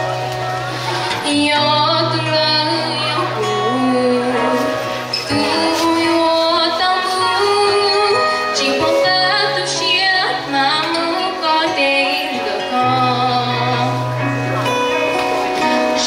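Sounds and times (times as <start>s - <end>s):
instrumental accompaniment: 0.0s - 16.0s
woman singing: 1.1s - 14.2s.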